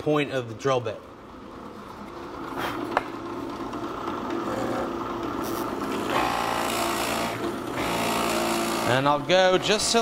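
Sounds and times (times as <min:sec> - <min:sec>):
drill press cutting wood: 0:03.7 - 0:10.0.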